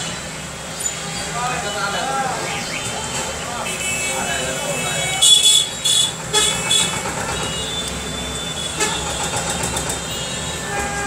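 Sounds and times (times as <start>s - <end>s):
car horn: 3.6s - 9.3s, 10.1s - 11.0s.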